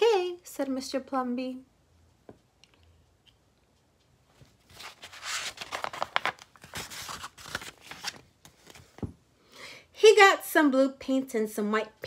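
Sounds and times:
paper page turning: 0:04.4 - 0:08.9.

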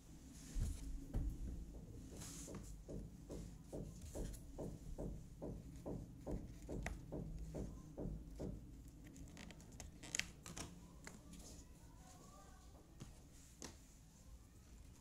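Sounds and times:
soft rhythmic thudding: 0:00.4 - 0:09.2.

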